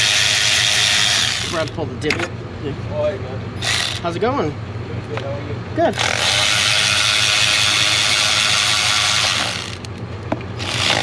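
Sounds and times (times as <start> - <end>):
electric ratchet running: 0.0 - 1.8, 3.6 - 4.3, 5.9 - 10.0, 10.6 - 11.0.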